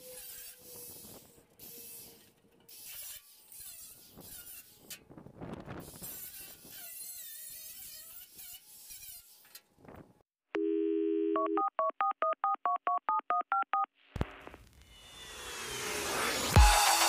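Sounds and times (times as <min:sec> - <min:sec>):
angle grinder on sheet metal: 0:00.0 - 0:05.1, 0:05.8 - 0:09.7, 0:14.9 - 0:17.0
telephone dial tone: 0:10.6 - 0:13.9
touch-tone keypad beeps: 0:10.6 - 0:13.9.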